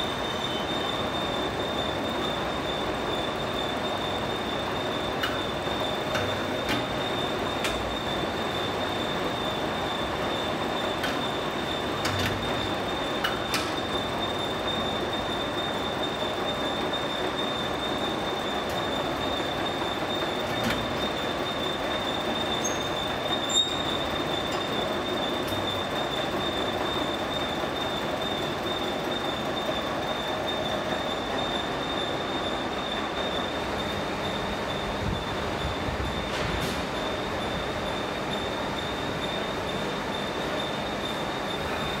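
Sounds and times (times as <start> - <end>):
hydraulic unit humming: 0.0 - 42.0.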